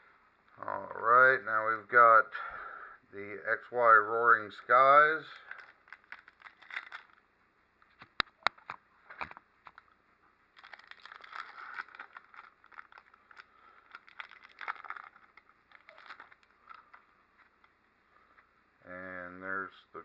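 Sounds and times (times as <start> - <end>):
wrapper crinkling and tearing: 5.4 - 7.2, 10.6 - 17.0.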